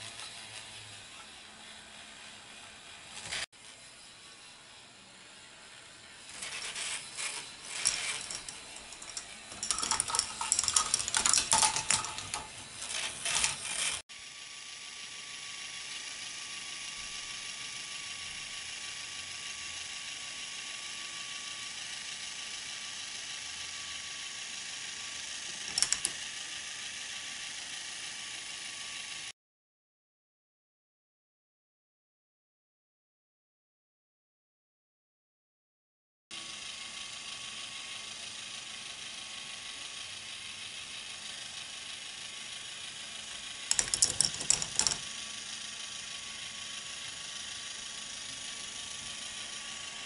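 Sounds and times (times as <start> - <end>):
plastic balls and parts clattering: 6.4 - 14.0, 25.5 - 26.2, 43.7 - 45.1.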